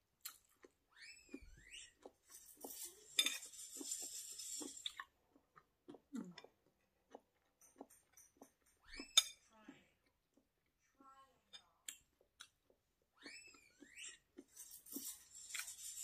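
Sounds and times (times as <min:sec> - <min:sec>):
utensils clinking on dish: 0:02.4 - 0:04.0.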